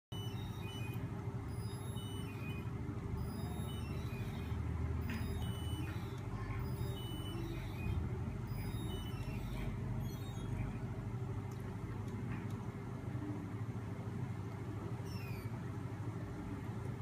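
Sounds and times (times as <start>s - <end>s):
high squeaks: 0.1s - 10.8s
motor rig whirring hum: 0.1s - 17.0s.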